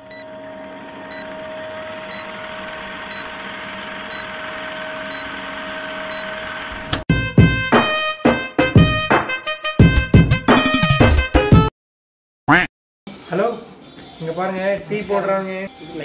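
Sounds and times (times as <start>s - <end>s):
film projector whirring and clattering: 0.0s - 7.1s.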